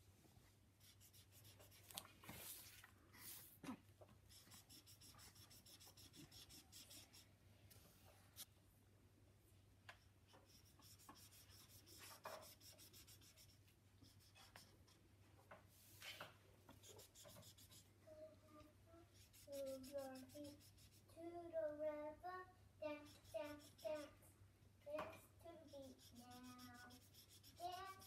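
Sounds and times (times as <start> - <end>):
marker scribbling on paper: 0.8 - 2.7, 4.3 - 7.2, 10.4 - 15.0, 16.7 - 17.9, 19.2 - 21.1, 23.0 - 24.1, 25.6 - 28.0
child's voice: 18.0 - 28.0.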